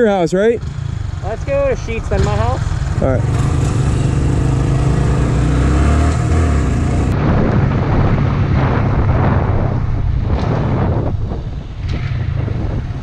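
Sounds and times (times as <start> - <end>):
motorbike engine running: 0.5 - 7.2
wind buffeting microphone: 0.8 - 13.0.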